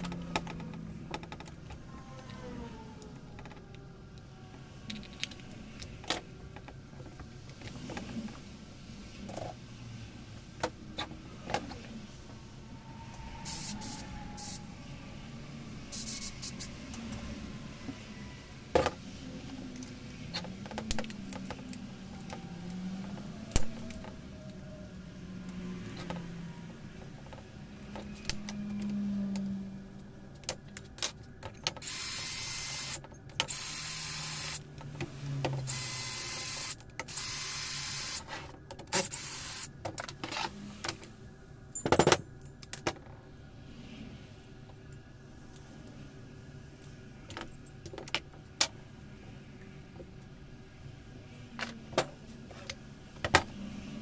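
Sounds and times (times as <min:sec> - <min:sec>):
cordless drill whining: 0:31.8 - 0:34.6, 0:35.7 - 0:38.2, 0:39.1 - 0:39.7.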